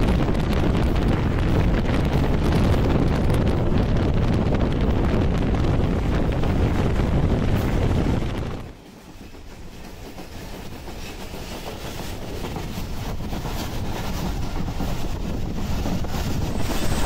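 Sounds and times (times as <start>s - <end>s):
wind blasting microphone: 0.0s - 8.8s, 10.1s - 17.0s
train running noise: 0.0s - 17.0s.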